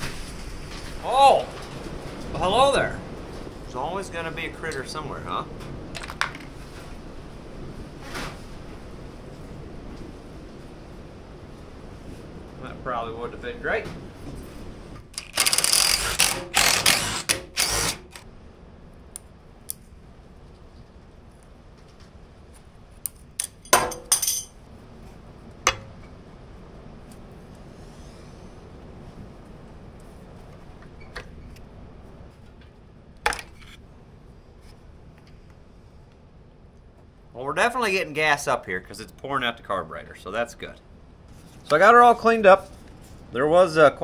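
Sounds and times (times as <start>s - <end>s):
low background noise: 0.0s - 44.0s
sharp clicks: 15.1s - 18.3s
ratchet rasping: 15.2s - 18.2s.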